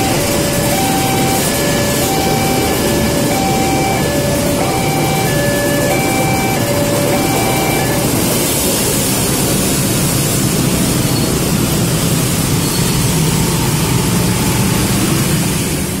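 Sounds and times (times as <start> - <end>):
level-crossing alarm tones: 0.0 - 9.3
motorcycle engines: 0.0 - 16.0
traffic din: 0.0 - 16.0.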